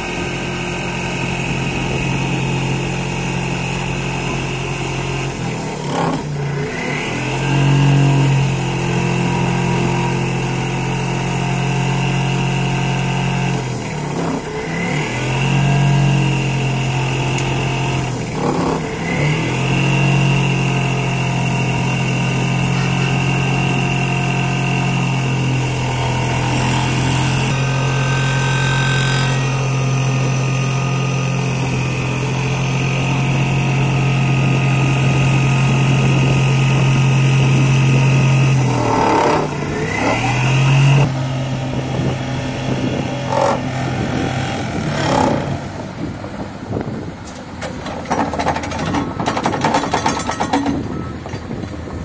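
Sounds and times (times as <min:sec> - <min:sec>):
vibratory hammer droning hum: 0:00.0 - 0:47.0
engine noise: 0:00.0 - 0:52.0
sharp metallic knocks: 0:47.6 - 0:51.5.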